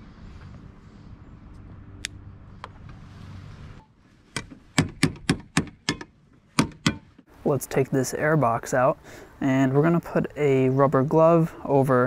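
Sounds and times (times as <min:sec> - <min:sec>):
steady low hum: 0:00.0 - 0:09.5.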